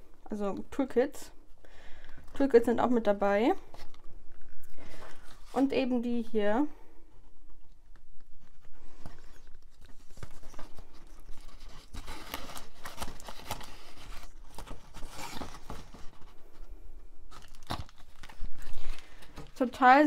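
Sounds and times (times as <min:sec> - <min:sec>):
packaging rustling in cardboard box: 0:08.5 - 0:16.7, 0:17.3 - 0:19.8.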